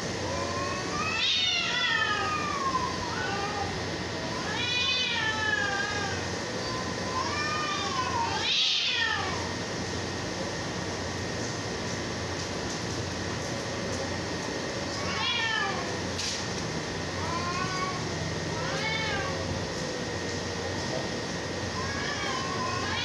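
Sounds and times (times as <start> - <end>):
cats yowling: 0.2 - 9.6, 14.9 - 16.1, 17.1 - 20.3, 21.6 - 23.0.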